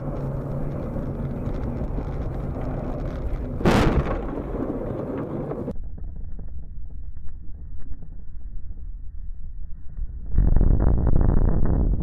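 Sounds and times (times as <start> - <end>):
car road and engine noise: 0.0 - 3.7.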